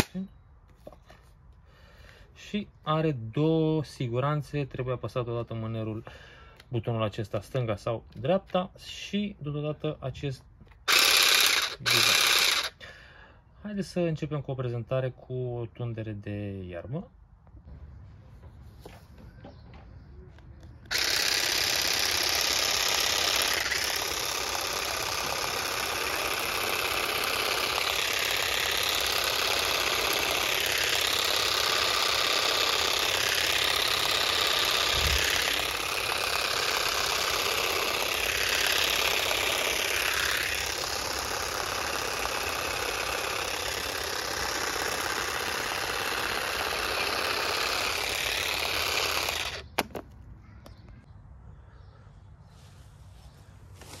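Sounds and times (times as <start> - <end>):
electric grass shears cutting: 0.0 - 0.2, 10.8 - 12.9, 20.8 - 50.0.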